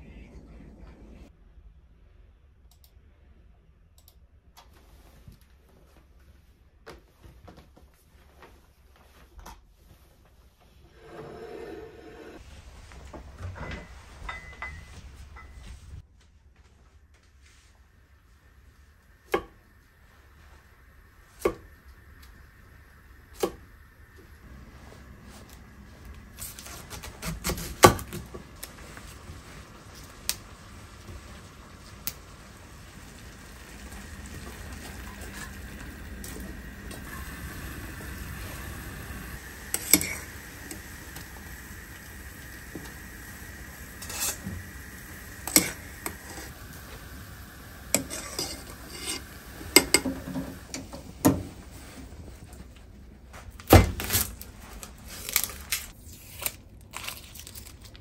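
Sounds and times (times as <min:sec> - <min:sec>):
pot of water hissing on hob: 0:10.9 - 0:12.4, 0:18.1 - 0:52.5
pot and strainer clinking: 0:45.4 - 0:46.5, 0:47.9 - 0:50.8.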